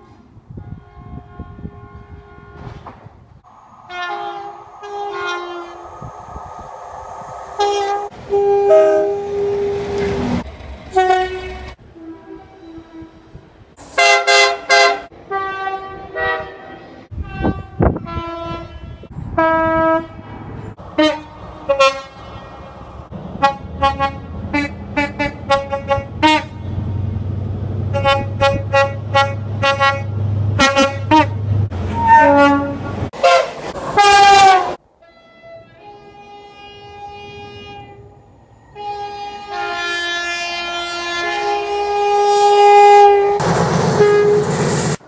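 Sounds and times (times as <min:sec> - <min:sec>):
two-tone train horns: 0:00.0 - 0:03.0, 0:03.7 - 0:06.2, 0:07.5 - 0:26.8, 0:27.9 - 0:44.7
low rumble: 0:03.4 - 0:09.4.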